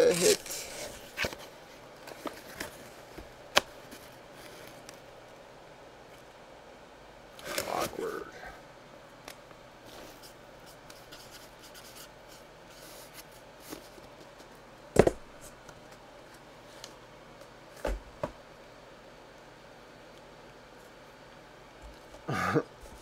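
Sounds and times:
cardboard rustling and scraping: 0.0s - 4.9s.

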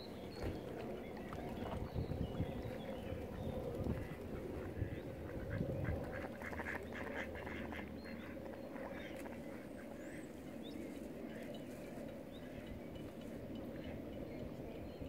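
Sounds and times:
ducks quacking: 4.0s - 10.2s.

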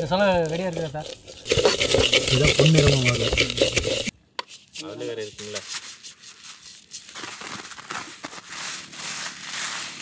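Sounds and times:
rice grains pattering on bamboo: 0.0s - 4.1s, 4.9s - 10.0s
person speaking: 1.9s - 4.1s.

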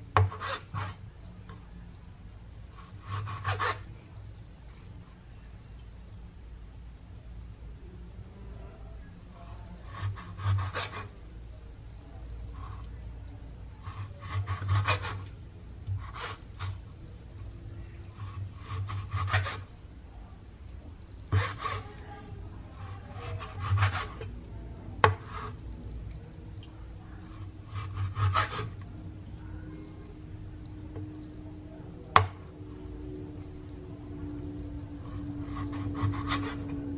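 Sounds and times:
knife slicing meat on cutting board: 2.8s - 3.9s, 9.8s - 11.2s, 13.8s - 16.9s, 18.2s - 19.7s, 21.3s - 22.0s, 22.7s - 24.3s, 25.0s - 25.6s, 27.3s - 28.8s, 35.1s - 36.9s.

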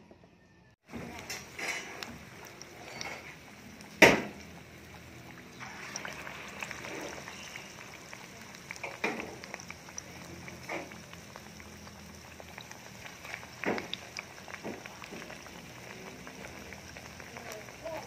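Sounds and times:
fritters sizzling in hot oil: 0.8s - 18.0s
oil popping: 0.8s - 18.0s.

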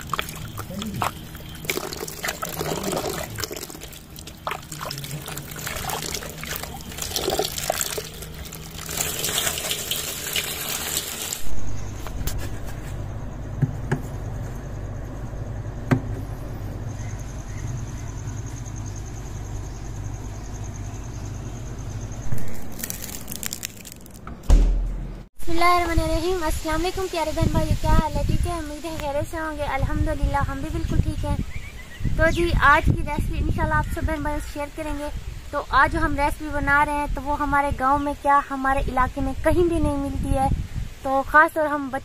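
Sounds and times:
water sloshing and splashing: 0.0s - 11.6s
refrigerator hum: 0.0s - 26.8s.

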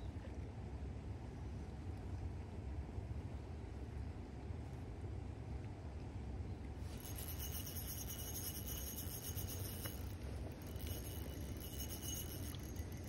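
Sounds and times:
fishing reel whirring and ticking: 6.9s - 13.0s.

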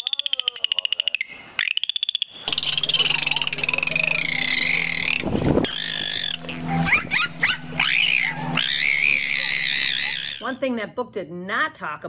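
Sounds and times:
dolphins whistling: 0.0s - 10.4s
low rush of noise: 2.5s - 10.4s
low steady hum: 2.5s - 11.3s.

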